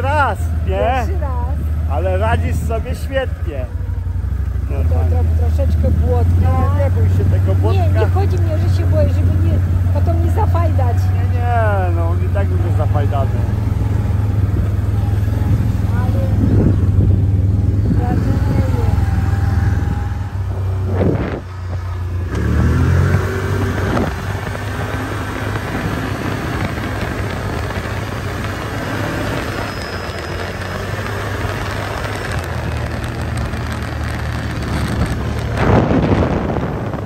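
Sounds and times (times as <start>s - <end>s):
vehicle engine running: 0.0s - 37.0s
wind buffeting microphone: 13.4s - 29.6s, 30.4s - 37.0s.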